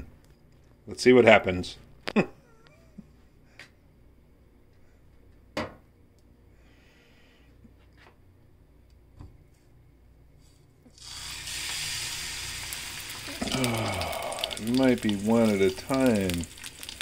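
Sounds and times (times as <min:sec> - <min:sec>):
steak sizzling in a wok: 0:11.0 - 0:17.0.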